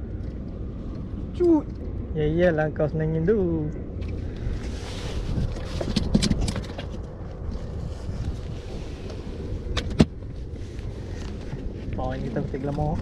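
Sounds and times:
wind buffeting microphone: 0:00.0 - 0:13.0
sharp knocks and rattles: 0:05.7 - 0:07.0.

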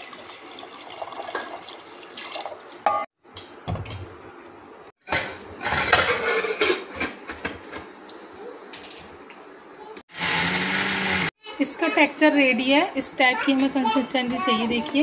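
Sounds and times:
water pouring into a pot: 0:00.0 - 0:02.9
metal lid clattering: 0:05.1 - 0:07.2.

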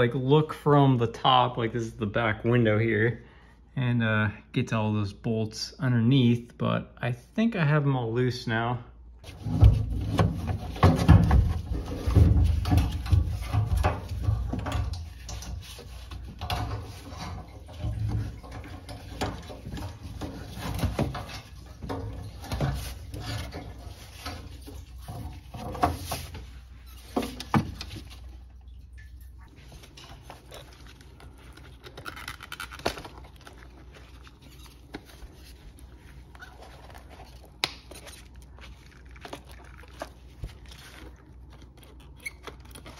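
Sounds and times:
rustling of plastic and metal parts: 0:09.2 - 0:28.7, 0:29.4 - 0:42.9.

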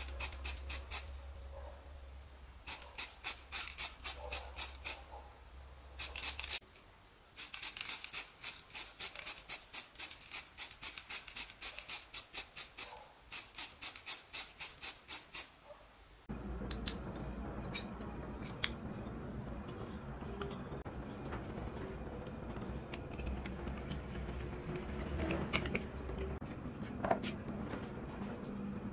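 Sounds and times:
spray paint can bursts: 0:00.0 - 0:01.2, 0:02.6 - 0:05.1, 0:06.0 - 0:06.6, 0:07.4 - 0:15.6.

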